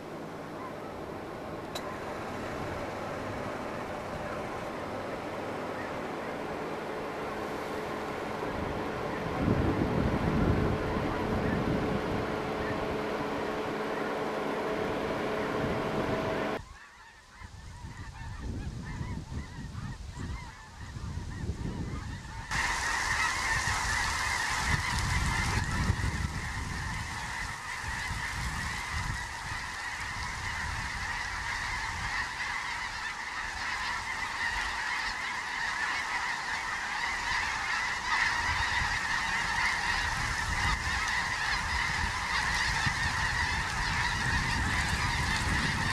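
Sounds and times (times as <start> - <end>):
steady hum with level tones: 0.0 - 16.6, 22.5 - 45.9
flock of geese calling: 0.0 - 45.9.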